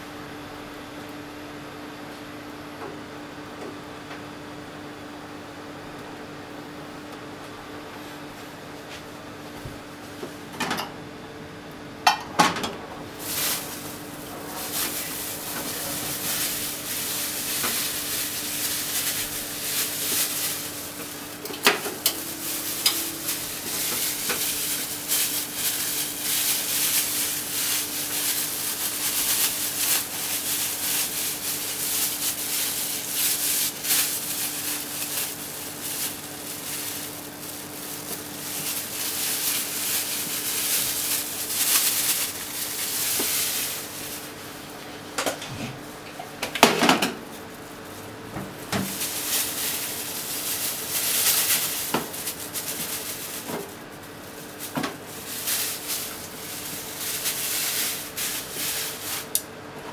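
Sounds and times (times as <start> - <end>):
oil sizzling and crackling: 13.1 - 44.8, 47.2 - 59.5.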